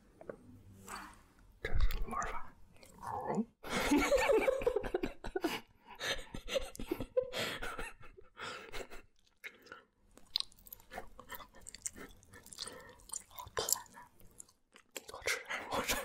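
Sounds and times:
chewing candy: 9.2s - 15.5s.

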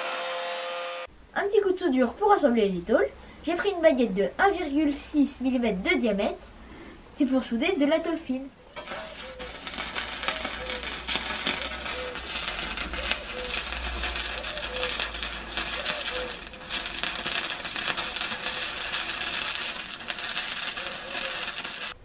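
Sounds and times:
steady low hum: 8.6s - 22.0s
arc welding crackling sizzle: 8.8s - 22.0s.

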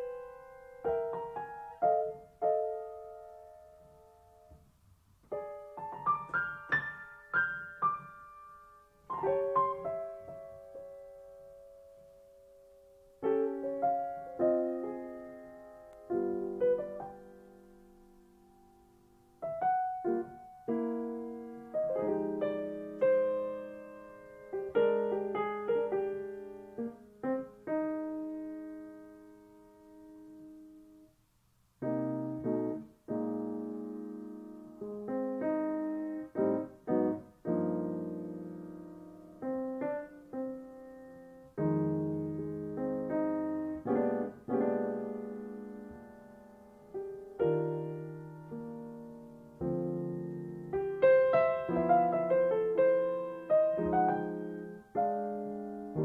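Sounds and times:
solo piano music: 0.0s - 56.0s.

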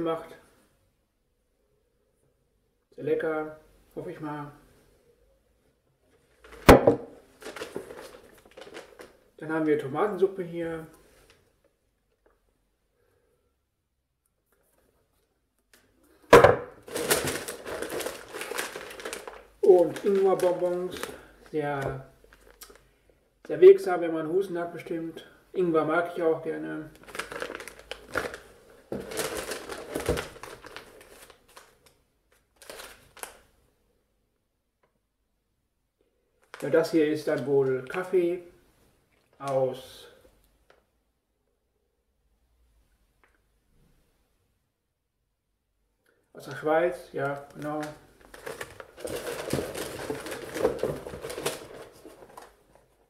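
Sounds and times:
packaging rustling and crinkling: 6.2s - 9.3s, 16.7s - 22.8s, 26.9s - 33.5s, 36.4s - 38.1s, 47.2s - 53.0s
foil bag crinkling: 7.3s - 9.3s, 16.8s - 22.8s, 26.9s - 33.4s, 47.2s - 53.0s.

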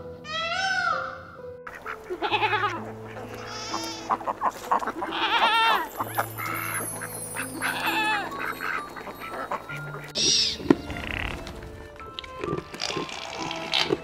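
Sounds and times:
soft music of held notes: 0.0s - 14.0s
goats bleating: 1.8s - 6.5s, 7.5s - 11.4s.

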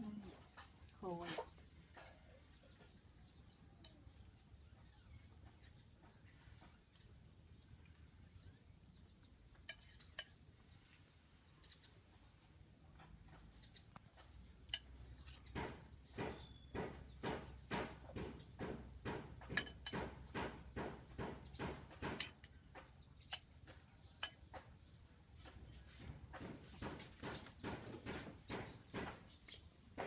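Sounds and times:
food preparation knocking: 14.1s - 30.0s.

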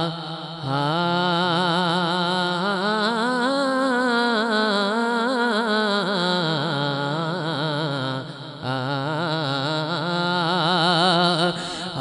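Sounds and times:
man singing devotional hymn: 0.0s - 12.0s.

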